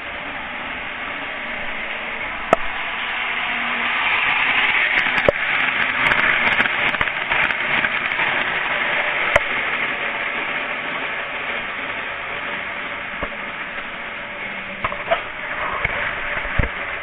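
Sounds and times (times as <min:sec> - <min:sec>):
model train whirring on track: 0:00.0 - 0:17.0.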